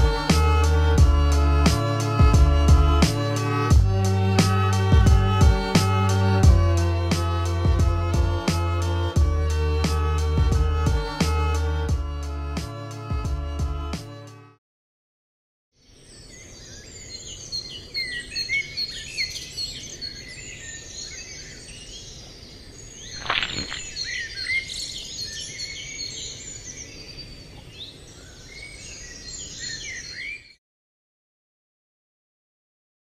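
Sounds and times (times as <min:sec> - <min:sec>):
outdoor noise: 0:15.8 - 0:30.4
small birds chirping: 0:15.8 - 0:30.6.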